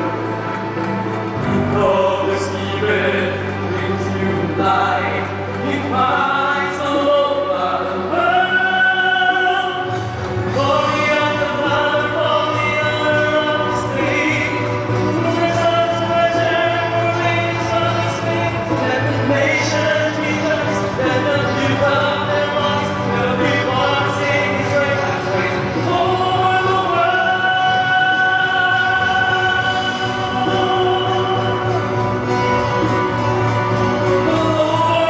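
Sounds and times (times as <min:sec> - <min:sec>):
amplified accompaniment with bass: 0:00.0 - 0:35.0.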